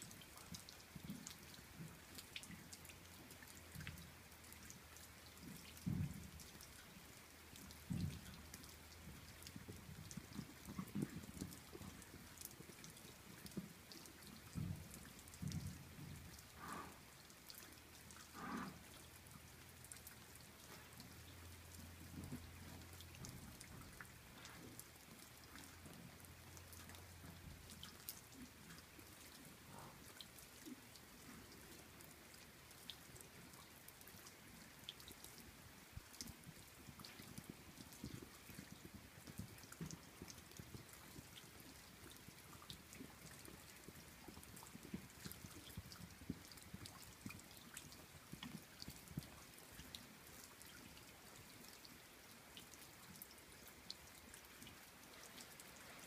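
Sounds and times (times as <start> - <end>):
light rain patter: 0.0 - 56.0
raindrops ticking: 0.0 - 56.0
soft low thumps: 14.5 - 16.4.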